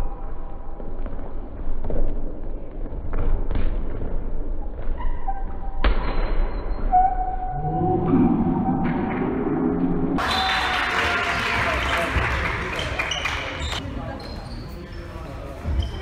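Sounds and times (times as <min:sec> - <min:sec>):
sneakers squeaking on floor: 0:12.8 - 0:16.0.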